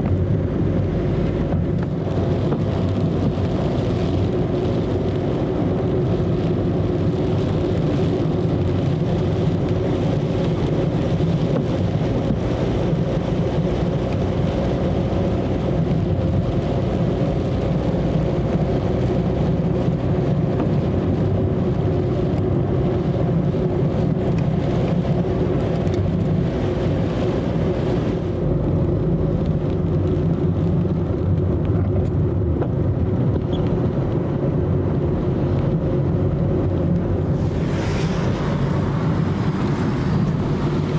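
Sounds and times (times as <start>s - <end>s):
engine and road drone: 0.0s - 40.9s
tyre hiss on wet road: 37.0s - 40.9s.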